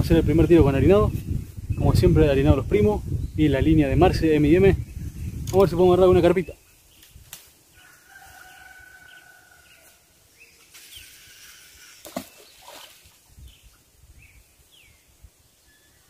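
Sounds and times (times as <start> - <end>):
distant rooster crowing: 7.7 - 10.2.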